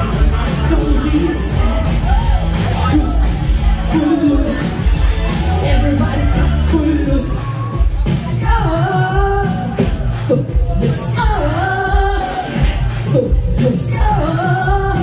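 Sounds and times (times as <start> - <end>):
heavy beat: 0.0 - 15.0
person singing: 0.0 - 15.0.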